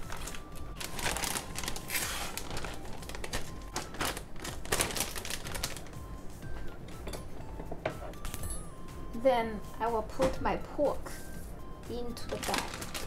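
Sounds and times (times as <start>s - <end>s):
plastic bag crinkling: 0.0s - 6.0s, 12.2s - 13.0s.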